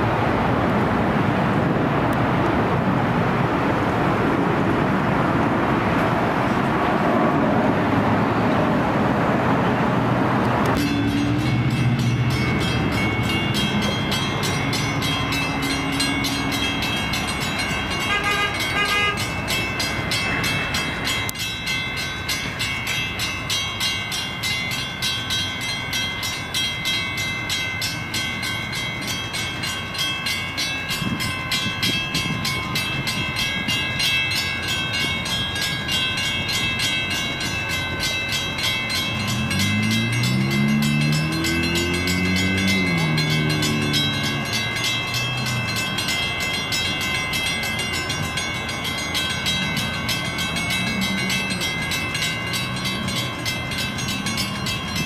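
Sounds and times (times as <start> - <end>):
train rumbling past: 0.0 - 55.0
crossing bells ringing: 7.8 - 55.0.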